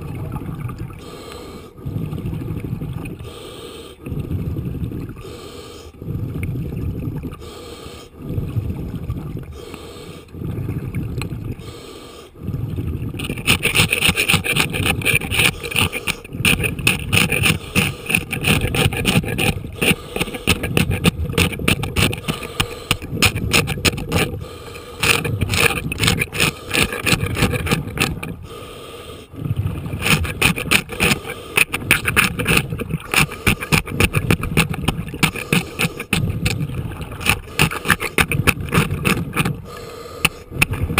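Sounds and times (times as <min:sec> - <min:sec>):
underwater bubbles: 0:00.0 - 0:40.9
scuba regulator breathing: 0:01.0 - 0:08.8, 0:09.4 - 0:40.9
hand scraper scraping barnacles: 0:13.2 - 0:28.4, 0:29.9 - 0:40.9.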